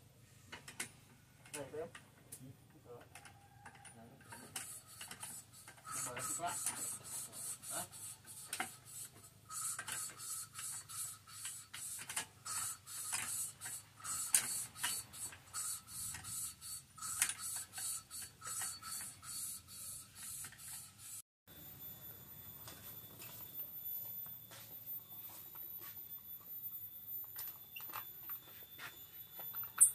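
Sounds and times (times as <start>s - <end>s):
ratchet wrench clicking: 3.8s - 19.6s, 29.5s - 29.9s.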